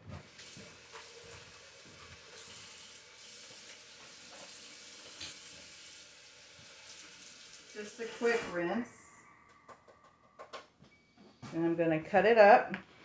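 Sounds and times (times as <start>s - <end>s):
faucet water running: 0.0s - 8.9s.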